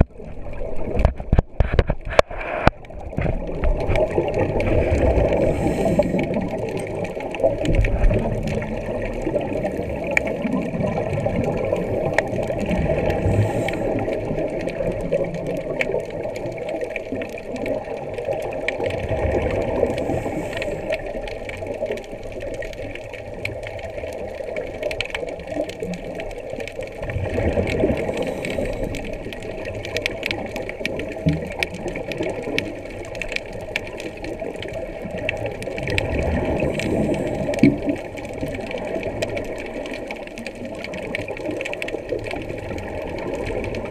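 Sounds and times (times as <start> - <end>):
bubbling exhalations: 0.0 - 23.8, 25.4 - 43.9
diver breathing through regulator: 4.7 - 6.6, 13.1 - 14.3, 19.8 - 21.1, 28.0 - 29.2.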